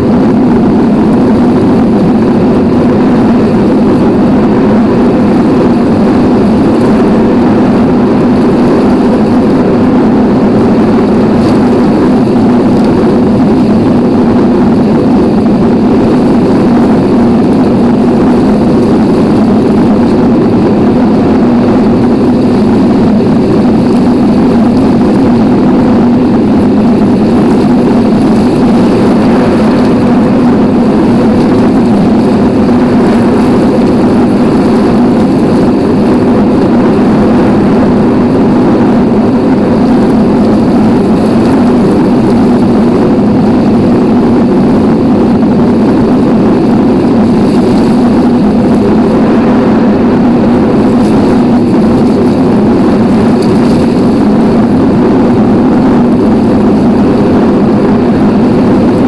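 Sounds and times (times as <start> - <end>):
heavy rain falling: 10.6 - 55.4.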